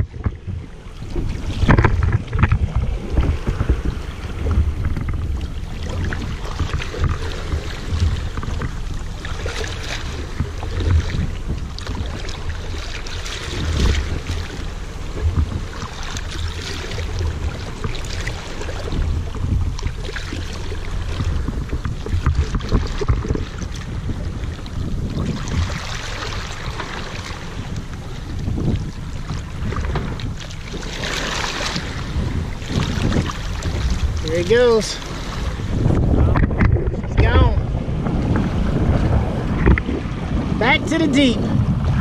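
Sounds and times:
steady low rumble: 0:00.0 - 0:42.0
water sloshing along boat hull: 0:00.0 - 0:42.0
wind buffeting microphone: 0:00.0 - 0:42.0.

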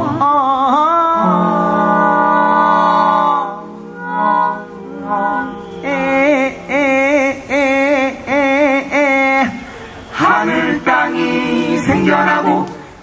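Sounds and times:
vocal group singing in harmony: 0:00.0 - 0:13.0.

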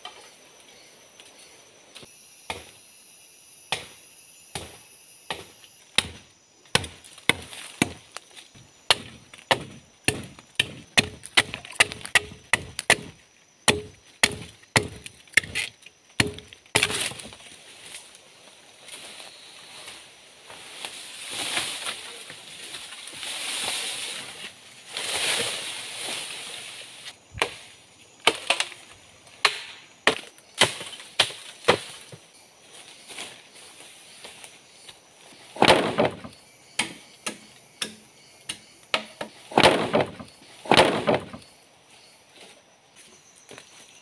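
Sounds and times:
machete chopping bamboo: 0:02.5 - 0:02.8, 0:03.7 - 0:08.1, 0:08.9 - 0:17.4, 0:28.2 - 0:28.8, 0:29.4 - 0:32.2, 0:35.6 - 0:41.4
bamboo crashing: 0:04.6 - 0:18.0, 0:21.1 - 0:32.2, 0:35.5 - 0:38.0, 0:38.9 - 0:41.5
rustling leaves: 0:13.2 - 0:36.4.

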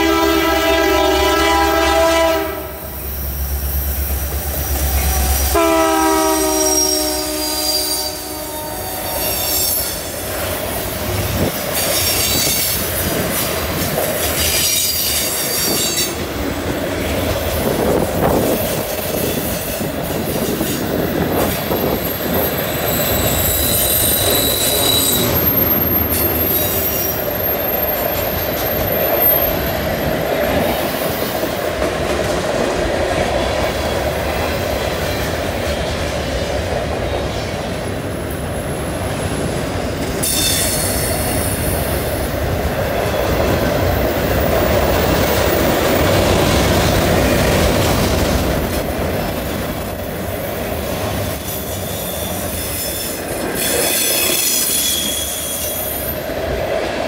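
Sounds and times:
steel wheels rumbling on rail: 0:00.0 - 0:57.0
wheel flange squeal: 0:21.7 - 0:29.8, 0:51.3 - 0:56.2.

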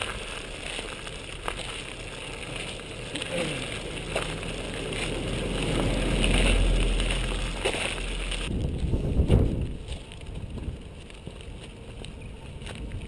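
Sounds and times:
car passing: 0:00.0 - 0:09.7
wheels crunching on gravel: 0:00.0 - 0:13.0
wind on microphone: 0:04.3 - 0:11.4.

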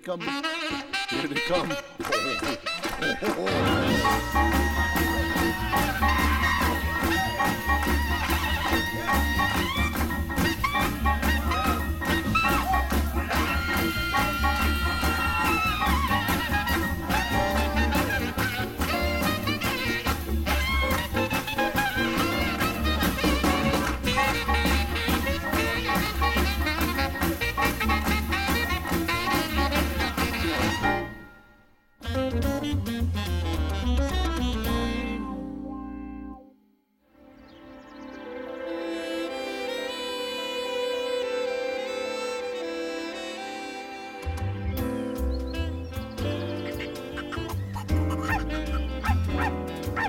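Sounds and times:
upbeat jazzy music: 0:00.0 - 0:36.5, 0:37.9 - 0:50.0
pulsing bass beat: 0:03.8 - 0:30.9.

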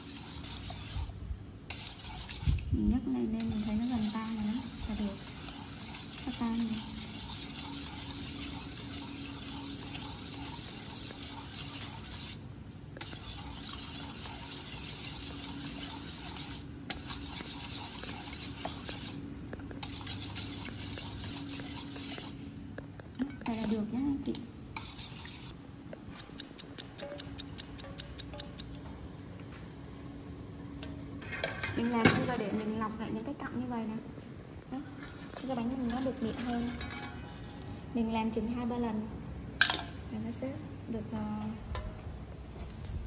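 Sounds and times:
whisk scraping metal bowl: 0:00.0 - 0:22.4, 0:23.4 - 0:23.9, 0:24.8 - 0:25.6, 0:35.3 - 0:37.5.

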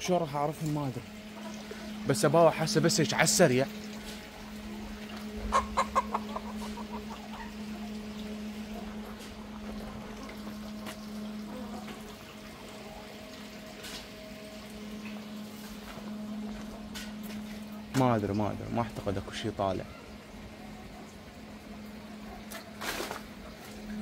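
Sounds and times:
steady low hum: 0:00.0 - 0:24.0
chickens clucking: 0:05.0 - 0:13.1.

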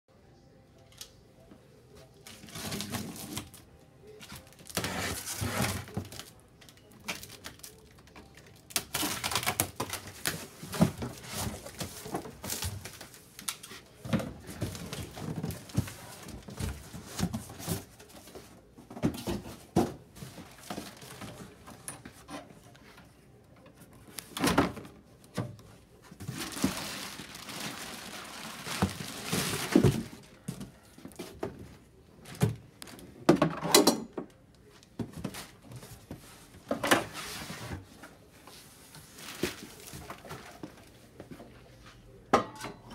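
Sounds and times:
cardboard scraping and rustling: 0:04.7 - 0:06.2, 0:26.2 - 0:30.2.

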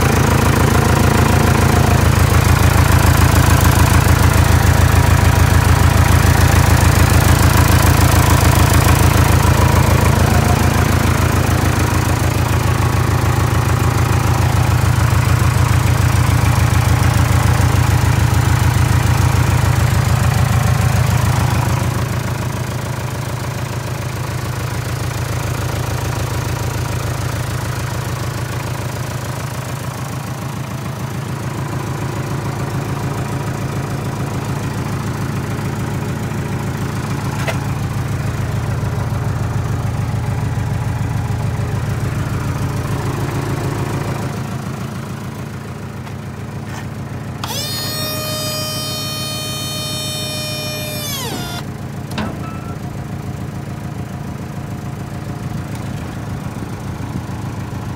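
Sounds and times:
truck engine idling: 0:00.0 - 0:20.0
loud held tone with overtones: 0:47.4 - 0:51.7.

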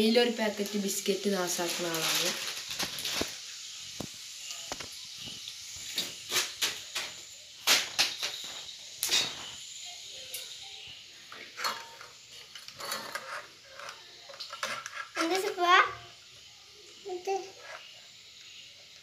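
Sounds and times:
faint steady hiss: 0:00.0 - 0:19.0
rustling with sharp crackles: 0:00.6 - 0:09.6.

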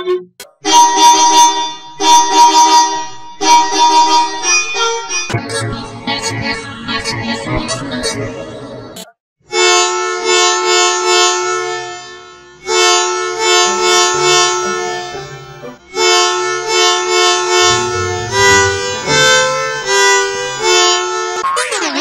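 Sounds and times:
musical bus horn tune: 0:00.7 - 0:04.7, 0:09.5 - 0:21.4.

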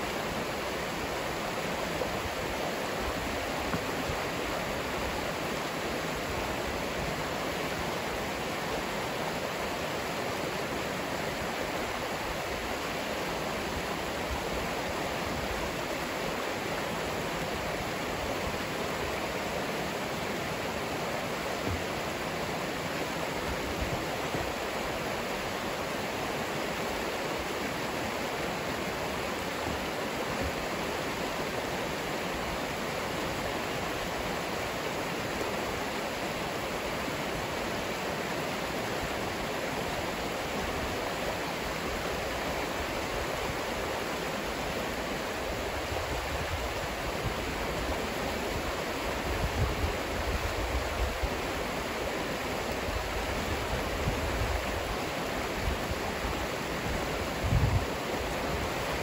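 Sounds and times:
water rushing over rocks: 0:00.0 - 0:59.0
wind buffeting microphone: 0:56.9 - 0:58.0.

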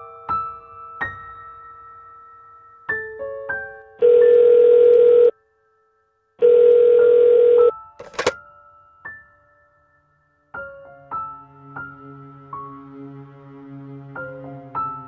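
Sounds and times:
telephone ringback tone: 0:04.0 - 0:05.3, 0:06.4 - 0:08.3
sharp phone click: 0:08.0 - 0:08.4.

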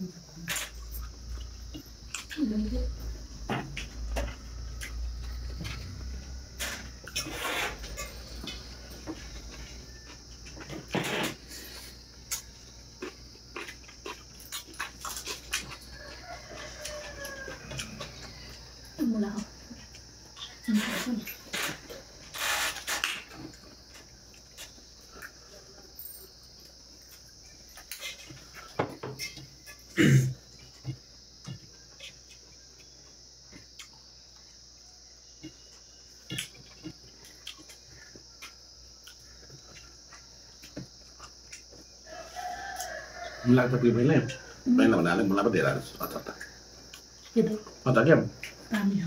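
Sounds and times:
steady high-pitched hiss: 0:00.0 - 0:49.0
man chewing with lip smacks: 0:11.8 - 0:16.2, 0:30.6 - 0:34.6, 0:35.4 - 0:41.9.

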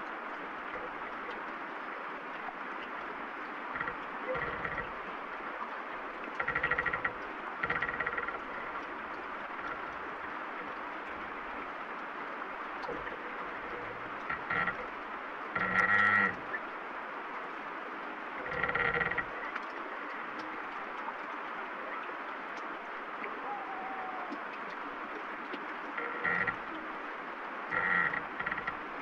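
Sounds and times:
steady rain falling: 0:00.0 - 0:29.0
tree branches creaking: 0:03.7 - 0:05.1, 0:06.2 - 0:11.4, 0:12.8 - 0:16.6, 0:18.4 - 0:19.6, 0:25.9 - 0:27.0, 0:27.7 - 0:29.0.

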